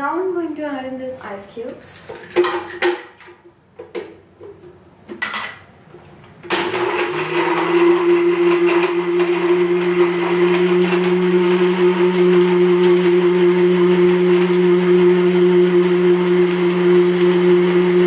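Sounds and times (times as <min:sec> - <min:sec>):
electric blender running: 0:06.5 - 0:18.0.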